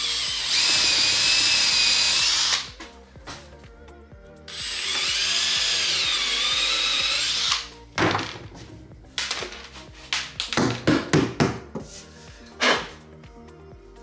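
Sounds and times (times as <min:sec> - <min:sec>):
cordless drill running under load: 0:00.0 - 0:02.8, 0:04.5 - 0:07.7.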